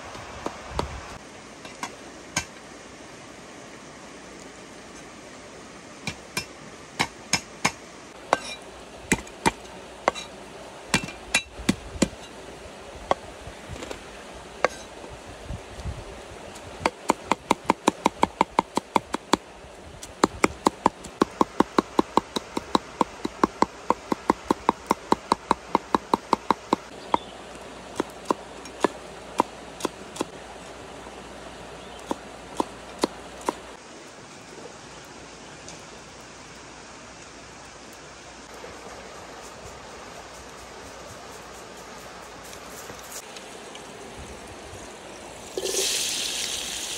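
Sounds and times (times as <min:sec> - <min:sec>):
cleaver chopping on wooden board: 0:20.2 - 0:27.3.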